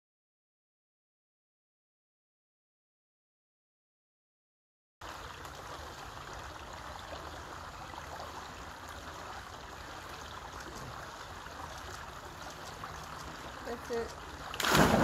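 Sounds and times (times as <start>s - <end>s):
water trickling into pool: 5.0s - 15.0s.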